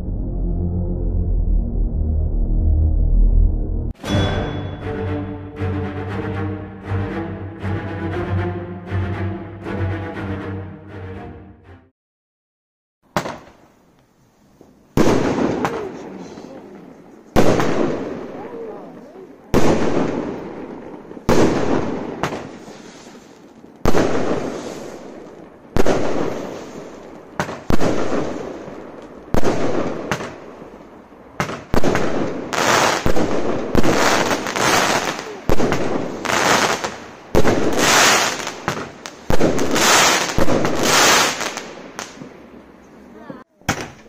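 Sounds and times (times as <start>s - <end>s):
firework bangs and crackle: 13.1s - 13.8s, 14.6s - 42.7s.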